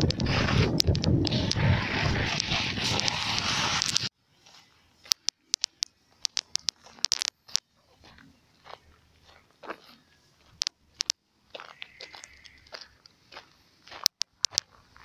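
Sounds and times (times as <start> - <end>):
wind buffeting microphone: 0.0 - 3.6
sharp clicks and crunches: 0.0 - 4.1, 5.0 - 7.7, 9.6 - 13.2, 13.9 - 15.0.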